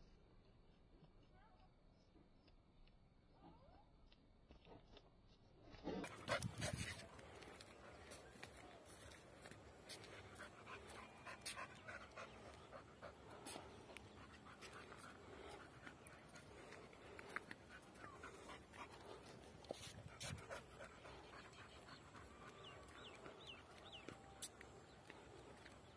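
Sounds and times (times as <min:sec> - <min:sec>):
dog panting: 0:05.8 - 0:25.9.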